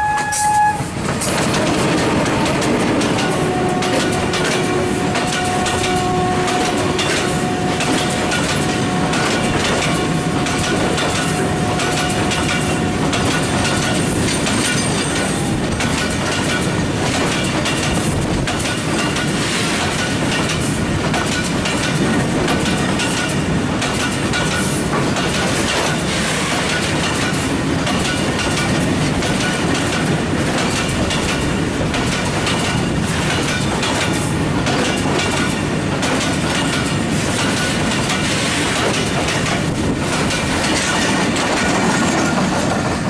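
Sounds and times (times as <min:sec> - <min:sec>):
freight train passing: 0:00.0 - 0:43.0
wheels clacking over rail joints: 0:00.1 - 0:43.0.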